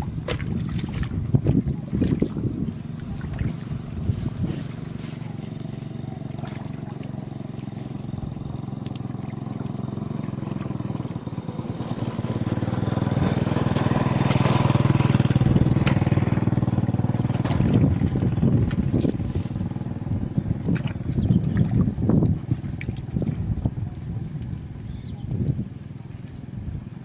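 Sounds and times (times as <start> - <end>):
hands splashing in muddy water: 0.0 - 11.2, 20.6 - 23.3
small engine running: 3.3 - 20.4.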